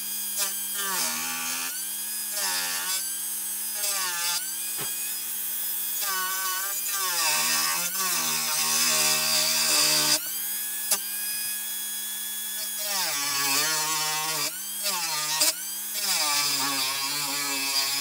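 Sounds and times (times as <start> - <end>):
rotary tool whining: 0.0 - 18.0.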